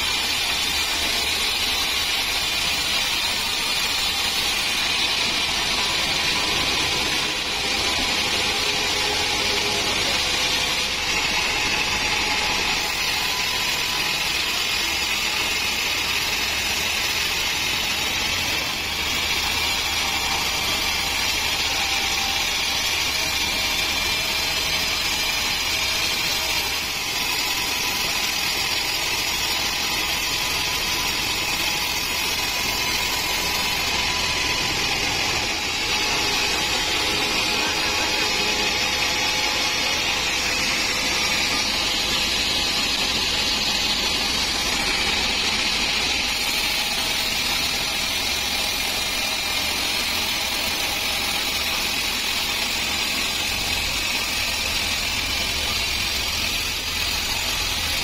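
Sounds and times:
band saw blade cutting log: 0.0 - 58.0
saw motor running: 0.0 - 58.0.

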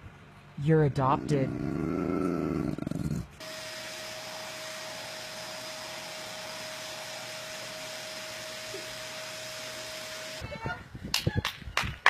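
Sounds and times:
vacuum cleaner running: 3.4 - 10.4.

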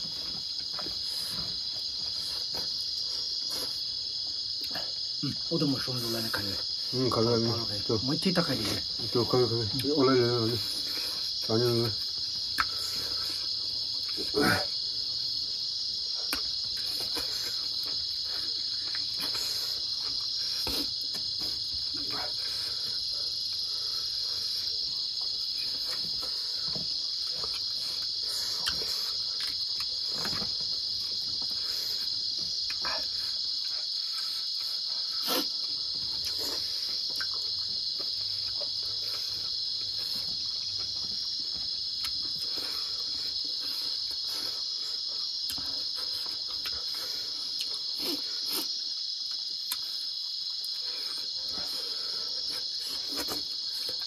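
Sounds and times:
crickets chirring: 0.0 - 54.0
eating smacks and clicks: 12.4 - 13.0, 16.2 - 18.0, 25.2 - 30.5, 47.6 - 49.8.

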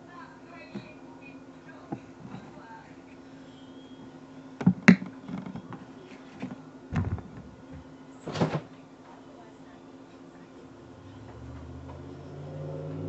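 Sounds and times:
steady low hum: 0.0 - 13.0
sharp handling clicks and knocks: 4.6 - 5.8
dull thump: 6.9 - 8.7.

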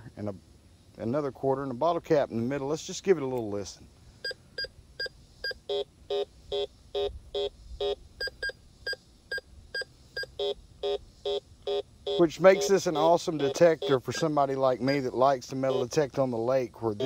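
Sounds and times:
metal detector beeps: 4.2 - 14.3, 15.6 - 16.0.

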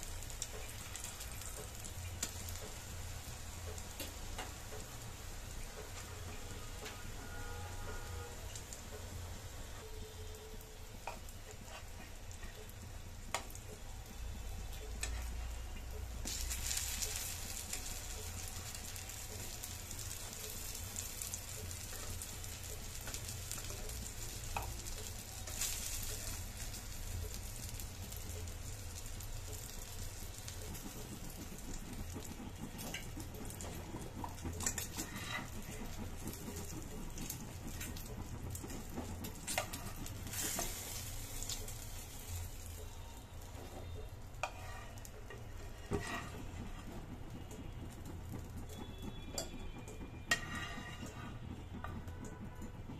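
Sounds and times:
eggplant slices sizzling in oil: 0.0 - 52.9
metal spatula clicking and scraping: 14.8 - 15.5, 29.8 - 42.3, 44.4 - 52.8.

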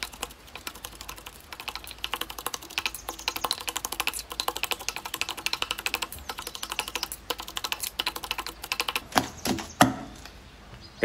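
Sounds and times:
pestle pounding in mortar: 8.9 - 10.2.

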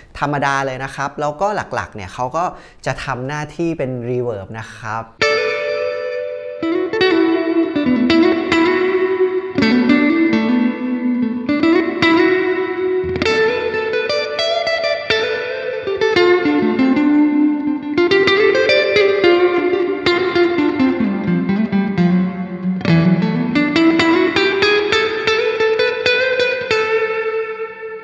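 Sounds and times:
electric guitar with long reverb: 5.2 - 28.0.

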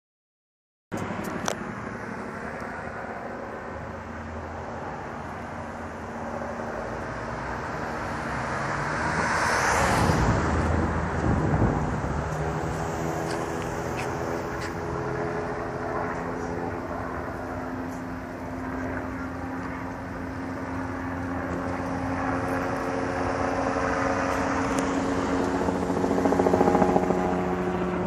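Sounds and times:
street traffic: 0.9 - 28.0
vehicle passing close: 6.7 - 15.8.

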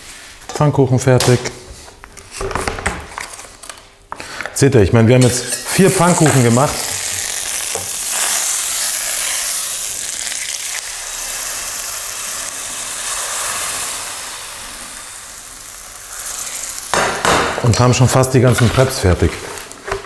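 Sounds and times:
frying pan sizzling: 5.6 - 18.2.

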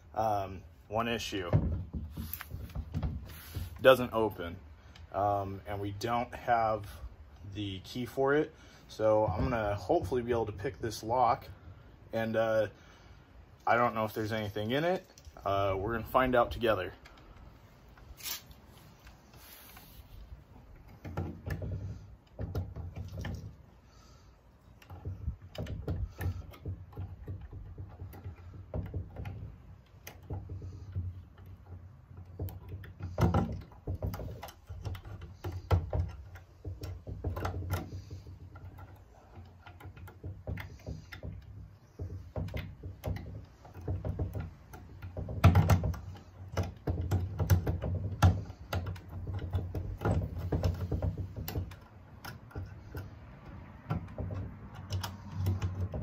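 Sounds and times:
lock picks scraping and clicking: 17.0 - 56.0
metallic knocks: 20.7 - 56.0.

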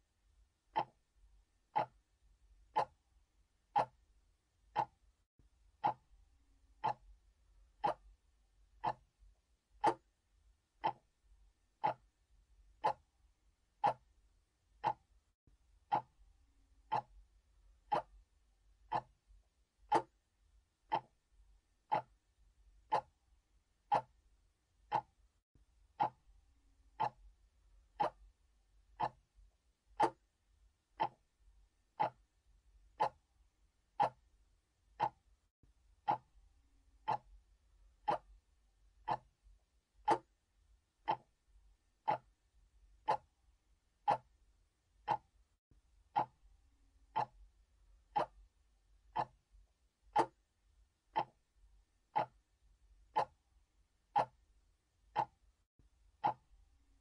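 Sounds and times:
mechanical clock ticking: 0.7 - 1.1, 1.7 - 2.0, 2.7 - 3.0, 3.7 - 4.0, 4.7 - 5.0, 5.8 - 6.1, 6.8 - 7.2, 7.8 - 8.2, 8.8 - 9.1, 9.8 - 10.1, 10.8 - 11.2, 11.8 - 12.2, 12.8 - 13.1, 13.8 - 14.2, 14.8 - 15.1, 15.9 - 16.2, 16.8 - 17.2, 17.9 - 18.2, 18.9 - 19.2, 19.9 - 20.2, 20.9 - 21.2, 21.9 - 22.2, 22.8 - 23.2, 23.9 - 24.2, 24.8 - 25.2, 26.0 - 26.3, 26.9 - 27.3, 28.0 - 28.3, 29.0 - 29.3, 30.0 - 30.3, 31.0 - 31.3, 32.0 - 32.3, 32.9 - 33.3, 34.0 - 34.3, 34.9 - 35.3, 36.0 - 36.4, 37.0 - 37.4, 38.0 - 38.4, 39.0 - 39.4, 40.0 - 40.3, 41.0 - 41.4, 42.0 - 42.4, 43.0 - 43.4, 44.0 - 44.4, 45.0 - 45.4, 46.1 - 46.4, 47.1 - 47.5, 48.1 - 48.5, 49.1 - 49.4, 50.1 - 50.4, 51.1 - 51.5, 52.1 - 52.4, 53.1 - 53.4, 54.1 - 54.4, 55.1 - 55.4, 56.2 - 56.5.

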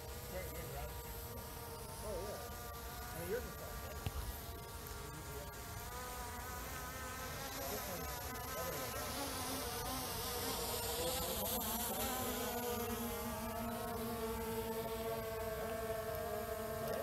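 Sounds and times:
drone propellers buzzing: 0.0 - 17.0.

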